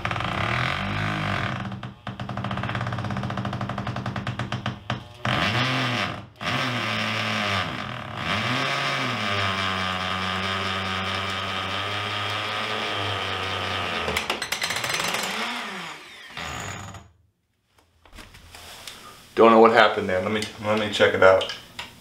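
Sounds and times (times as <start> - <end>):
power drill drilling into wood: 5.3 - 17.0.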